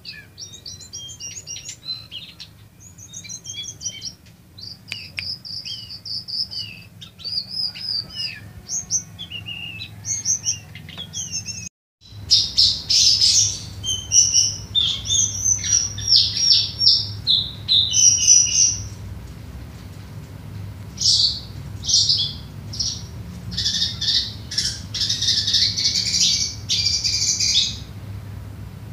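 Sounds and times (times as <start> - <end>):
bird singing whistled phrases: 0.0 - 18.9, 21.0 - 27.9
steady low hum: 12.0 - 28.9.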